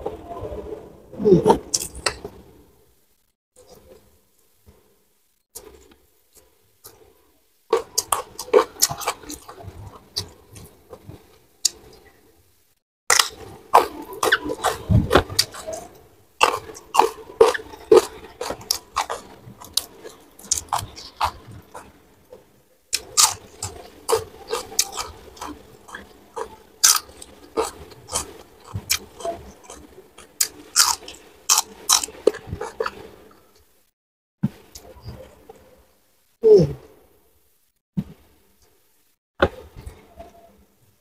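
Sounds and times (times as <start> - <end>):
person chewing crunchy food: 7.7 - 11.9, 13.1 - 33.4.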